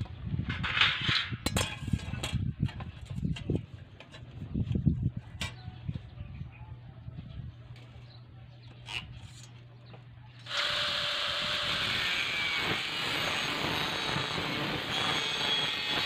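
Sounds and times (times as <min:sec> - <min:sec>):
angle grinder running: 0:10.4 - 0:16.0.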